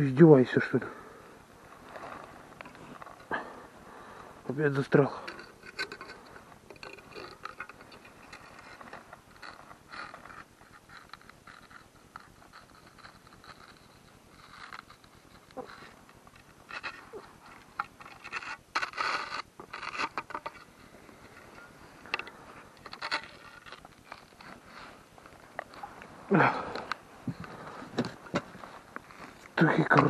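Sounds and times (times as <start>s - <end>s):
pole scraping ice and slush: 4.8s - 27.0s.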